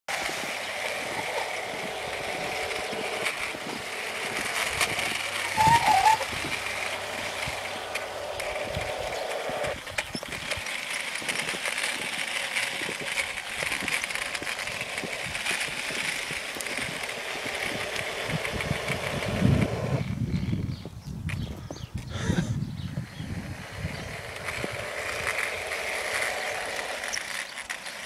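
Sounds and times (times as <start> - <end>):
model train motor running: 0.1 - 20.9, 22.9 - 28.0
small clicks: 24.3 - 28.0.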